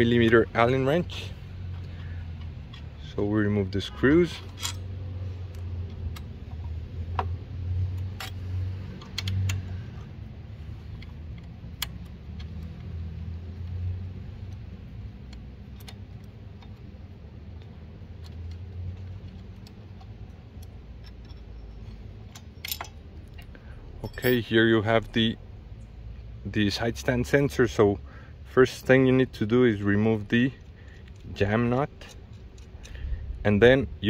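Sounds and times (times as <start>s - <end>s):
metallic clicks of allen key: 17.6s - 24.5s
low rumble: 32.1s - 34.0s.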